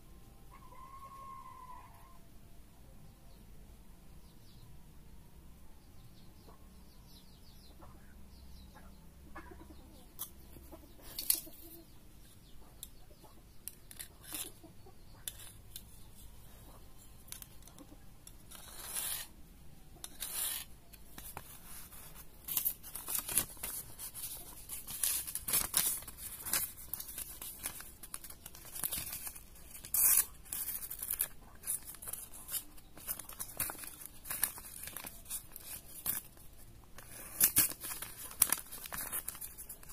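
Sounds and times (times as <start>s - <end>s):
hand work scrapes and clicks: 13.6s - 14.6s, 15.2s - 16.4s, 17.1s - 19.3s, 20.0s - 39.9s.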